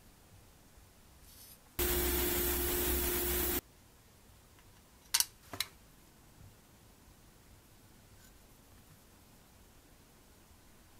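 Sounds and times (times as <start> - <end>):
low hum: 1.8 - 3.6.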